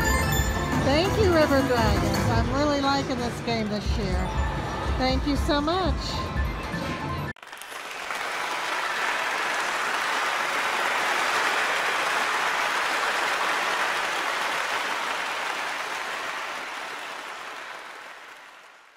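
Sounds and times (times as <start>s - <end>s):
crowd applause: 7.4s - 18.9s.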